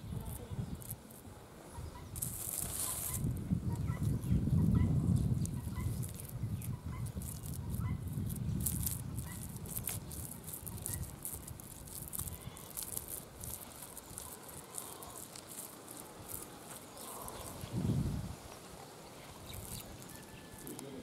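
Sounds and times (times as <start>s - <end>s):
dry clay crumbling: 5.2s - 17.7s, 19.3s - 20.9s.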